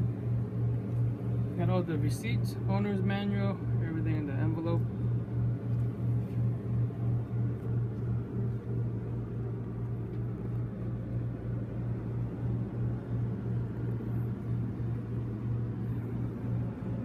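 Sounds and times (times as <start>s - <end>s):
air conditioner humming: 0.0s - 17.0s.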